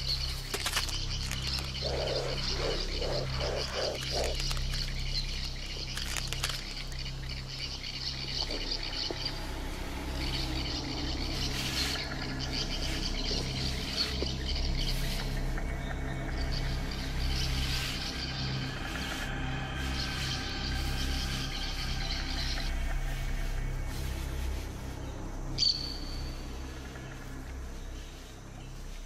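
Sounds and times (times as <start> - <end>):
high chirping wildlife chorus: 0.0 - 29.0
low steady hum: 0.0 - 29.0
frog croaking: 1.2 - 6.5.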